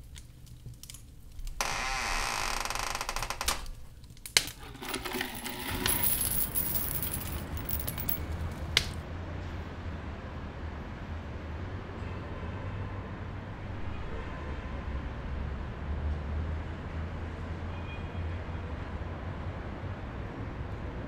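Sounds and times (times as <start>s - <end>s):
loud wooden creaking: 1.6s - 8.0s
metallic jingle of coins: 4.6s - 8.7s.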